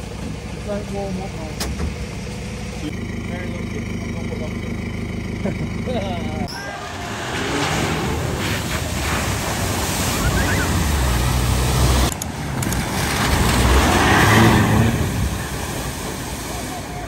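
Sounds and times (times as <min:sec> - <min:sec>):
truck engine rumble: 0:00.0 - 0:17.0
water rushing and splashing: 0:06.7 - 0:17.0.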